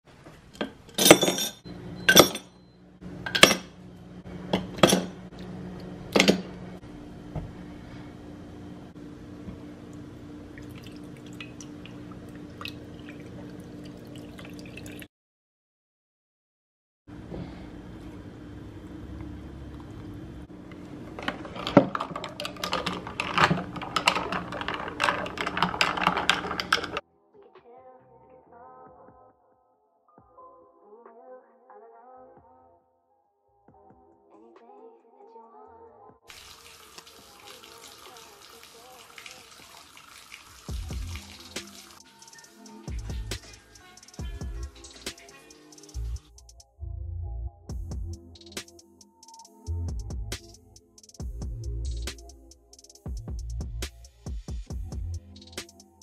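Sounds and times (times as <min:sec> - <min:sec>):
low room hum: 0:01.4 - 0:15.0, 0:17.1 - 0:27.0
ice cubes clinking in glass: 0:21.2 - 0:27.0.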